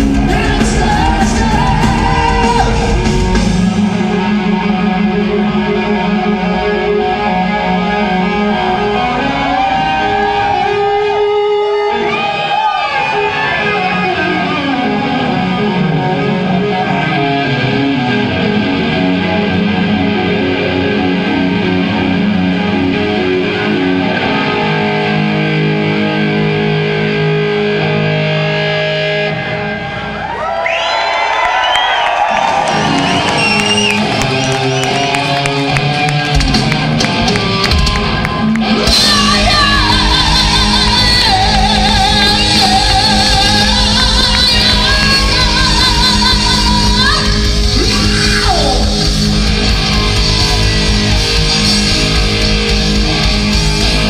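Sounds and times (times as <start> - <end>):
drums: 0.0 - 7.5, 32.0 - 54.0
bass guitar: 0.0 - 30.6, 32.2 - 54.0
distorted electric guitars: 0.0 - 30.6, 32.2 - 54.0.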